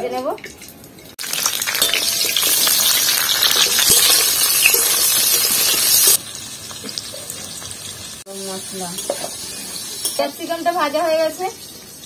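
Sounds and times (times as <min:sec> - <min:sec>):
pepper sizzling in hot oil: 0:01.2 - 0:12.0
metal spatula scraping: 0:09.0 - 0:10.4.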